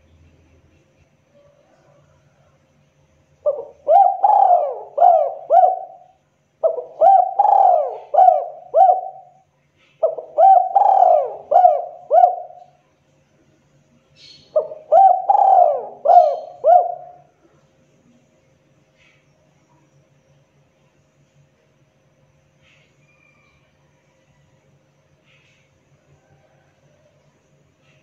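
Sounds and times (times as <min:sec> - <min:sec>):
dove cooing: 0:03.4 - 0:12.8, 0:14.5 - 0:17.3.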